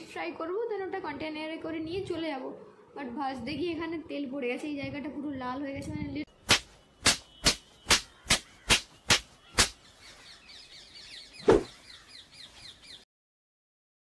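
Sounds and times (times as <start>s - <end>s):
sharp rhythmic clicks: 6.5s - 9.8s
faint bird chirping: 6.8s - 13.1s.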